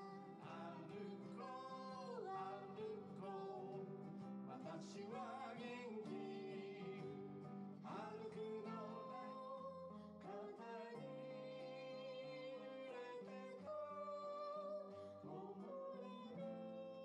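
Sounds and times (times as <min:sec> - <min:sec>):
acoustic guitar: 0:00.0 - 0:17.0
man singing: 0:00.0 - 0:17.0.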